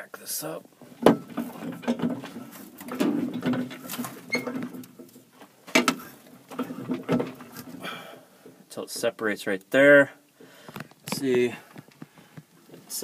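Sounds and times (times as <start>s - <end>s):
jack clicking and creaking: 0.8s - 9.1s.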